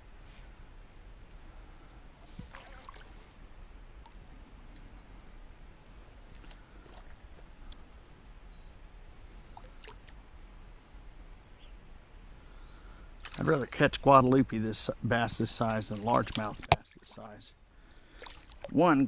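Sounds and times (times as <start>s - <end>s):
water lapping and splashing: 2.2s - 3.4s, 9.5s - 10.1s, 15.6s - 17.4s, 18.0s - 18.9s
small clicks and chirps: 6.3s - 6.6s.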